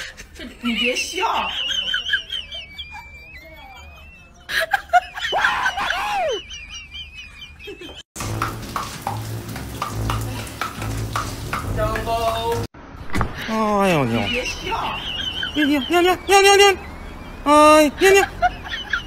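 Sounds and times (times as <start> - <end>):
shower spraying water: 8.2 - 12.7
small birds warbling: 13.8 - 19.0.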